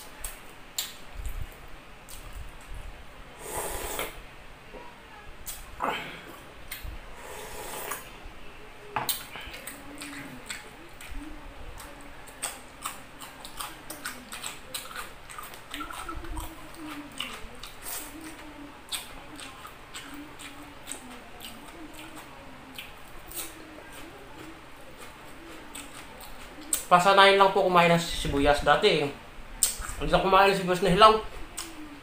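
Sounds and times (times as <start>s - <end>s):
slurping broth: 3.4s - 4.2s, 7.2s - 8.1s
wet chewing and lip smacking: 9.1s - 27.0s, 29.6s - 30.0s, 31.5s - 31.9s.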